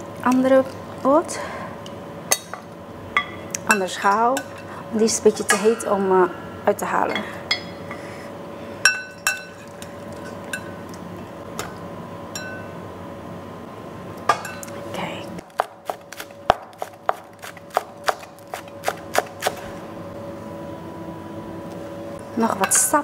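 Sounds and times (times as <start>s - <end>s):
knife chopping on cutting board: 15.5s - 19.6s.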